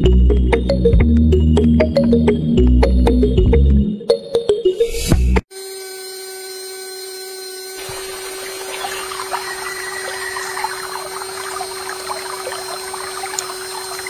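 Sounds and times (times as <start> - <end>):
small electric motor whining: 5.5 - 14.0
water splashing and trickling: 7.8 - 14.0.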